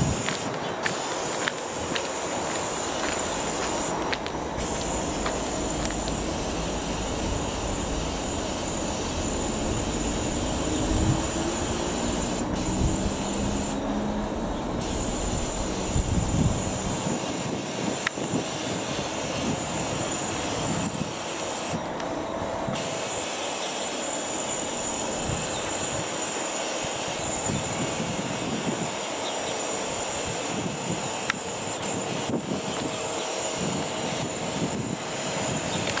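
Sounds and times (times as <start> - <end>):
distant helicopter drone: 0.0 - 36.0
deep rumble: 2.9 - 17.1.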